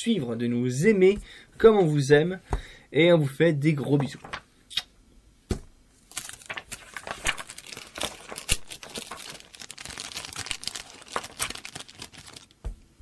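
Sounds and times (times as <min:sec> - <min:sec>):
paper pages rustling and crinkling: 0:04.0 - 0:04.5, 0:06.1 - 0:12.8.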